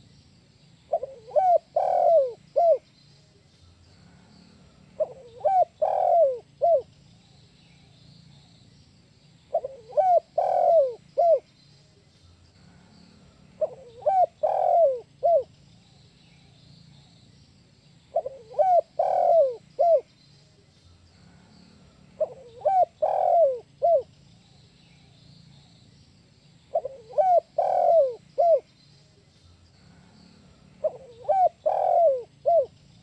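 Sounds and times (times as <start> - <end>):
dove cooing: 0.9 - 2.8, 5.0 - 6.9, 9.5 - 11.5, 13.6 - 15.5, 18.1 - 20.1, 22.2 - 24.1, 26.7 - 28.7, 30.8 - 32.8.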